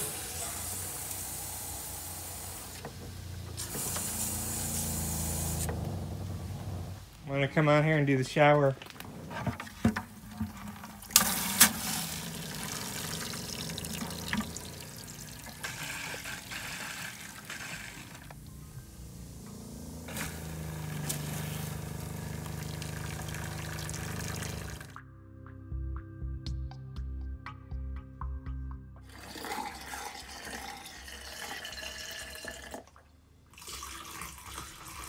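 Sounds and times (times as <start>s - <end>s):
liquid spraying into metal bucket: 10.1s - 25.0s.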